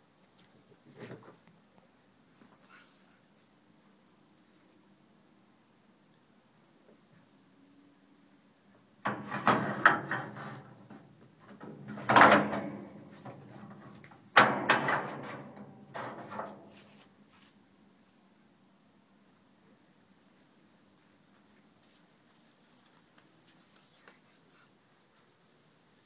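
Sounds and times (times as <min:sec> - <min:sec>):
steel lid clanking and rattling: 0:09.1 - 0:10.7, 0:11.6 - 0:13.0, 0:14.4 - 0:16.6.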